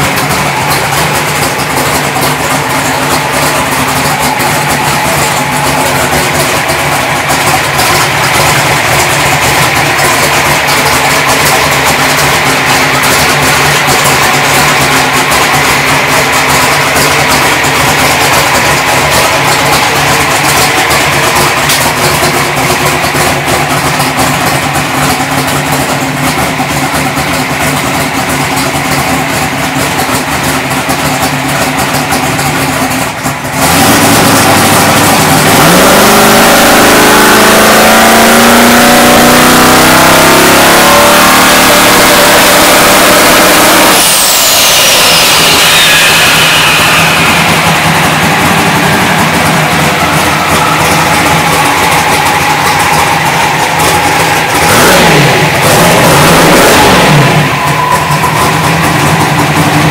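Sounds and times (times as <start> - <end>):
drag car engine idling and revving: 0.0 - 59.9
turbo whistle: 43.2 - 59.1.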